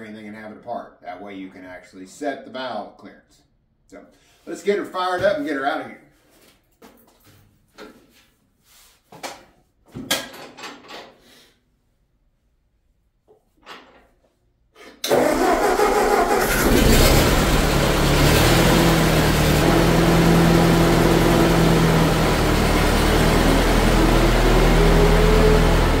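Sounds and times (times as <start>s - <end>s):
tractor engine starting and running: 15.0s - 26.0s.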